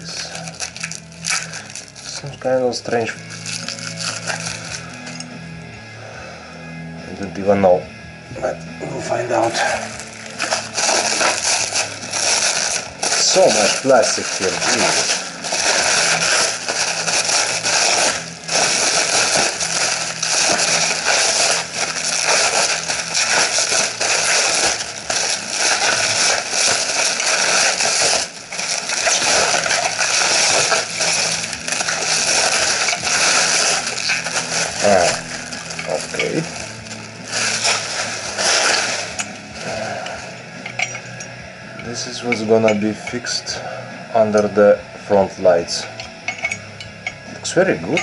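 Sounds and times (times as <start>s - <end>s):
plastic wrap crinkling: 0.0s - 5.3s, 9.3s - 41.2s.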